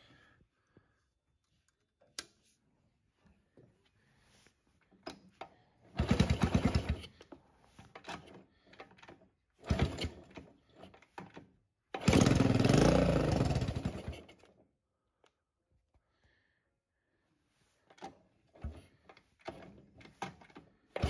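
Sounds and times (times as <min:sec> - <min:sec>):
motorcycle engine kick-started: 0:05.9 - 0:07.2, 0:08.1 - 0:10.5, 0:11.3 - 0:14.4.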